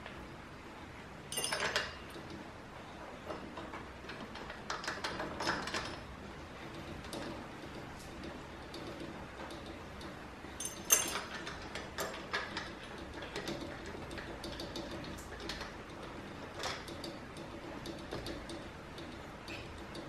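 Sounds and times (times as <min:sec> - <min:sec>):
metal clamp clicks and clinks: 0:01.3 - 0:02.2, 0:10.6 - 0:13.1.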